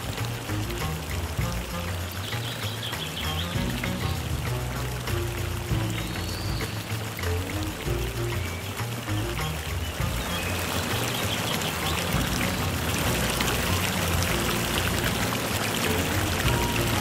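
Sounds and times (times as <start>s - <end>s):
soft low music: 0.0s - 17.0s
water pouring over stones: 0.0s - 17.0s.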